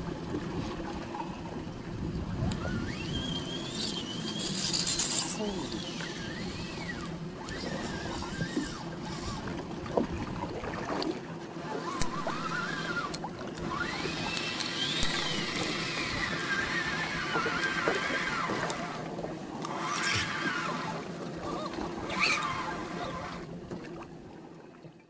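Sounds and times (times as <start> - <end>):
outboard boat engines running: 0.0 - 25.0
water sloshing against hull: 0.0 - 25.0
rising and falling whine: 11.8 - 23.5
light clicks: 14.3 - 16.6.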